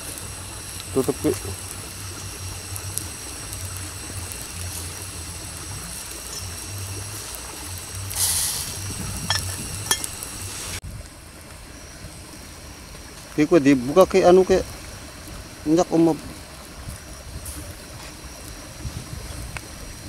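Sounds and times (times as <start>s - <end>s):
pot boiling on gas stove hiss: 0.0s - 20.0s
metal lid clinks: 9.3s - 10.1s.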